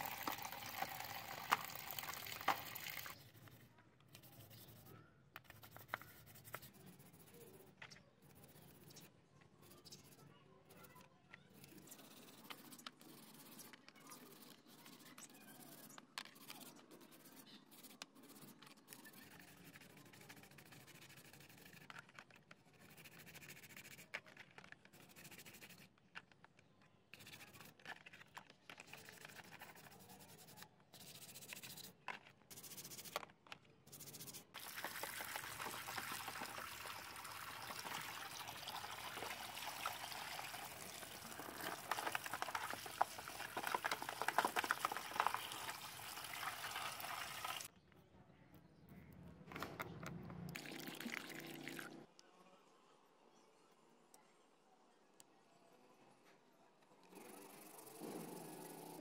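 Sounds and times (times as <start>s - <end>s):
water splashing and pouring: 0.0s - 3.1s, 34.6s - 47.7s, 50.6s - 52.0s
toothbrush scrubbing plastic: 0.0s - 3.6s, 8.3s - 26.3s, 27.2s - 33.3s, 33.9s - 47.7s.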